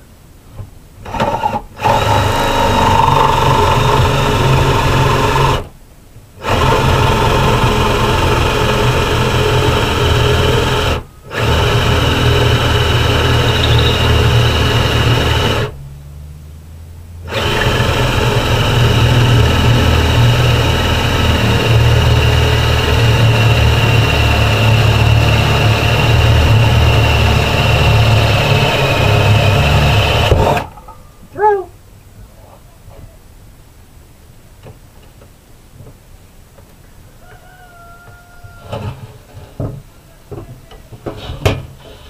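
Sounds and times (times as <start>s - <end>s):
power drill boring into wood: 1.0s - 5.7s, 6.4s - 15.7s, 17.3s - 30.7s.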